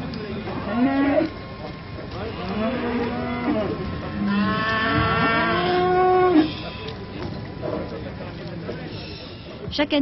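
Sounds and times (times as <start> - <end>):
cows mooing: 0.4 - 1.4, 2.1 - 7.0.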